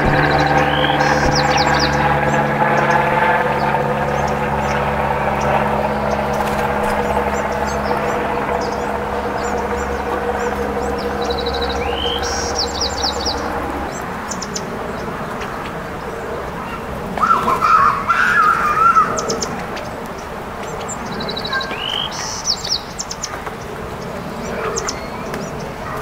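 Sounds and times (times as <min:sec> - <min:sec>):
loud wavering sound: 0:00.0 - 0:05.2
low steady hum: 0:00.0 - 0:13.8
songbirds singing: 0:00.0 - 0:26.0.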